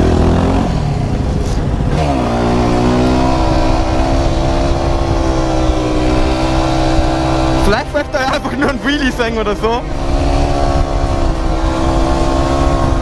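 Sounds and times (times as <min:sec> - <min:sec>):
motorcycle engine revving: 0:00.0 - 0:13.0.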